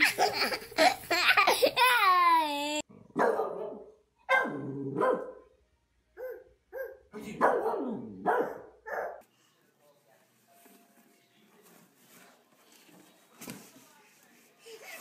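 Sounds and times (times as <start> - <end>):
dog barking and yowling: 6.2 - 9.2.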